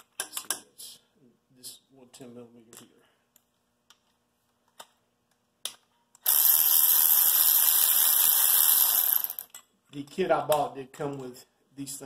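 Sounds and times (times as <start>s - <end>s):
electric ratchet motor whir: 6.2s - 9.5s.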